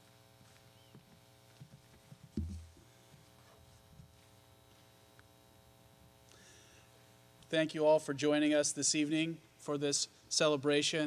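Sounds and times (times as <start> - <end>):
electrical hum: 0.0 - 10.8
dull low thump: 2.4 - 2.8.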